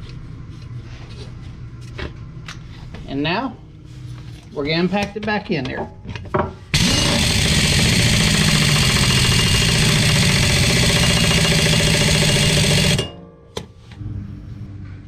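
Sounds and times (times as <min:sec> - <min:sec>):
pneumatic impact wrench hammering: 0:06.7 - 0:13.2.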